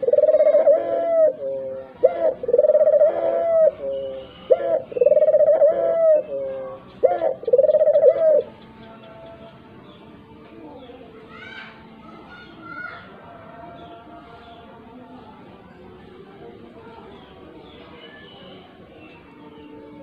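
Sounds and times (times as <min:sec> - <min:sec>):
dove cooing: 0:00.0 - 0:08.7.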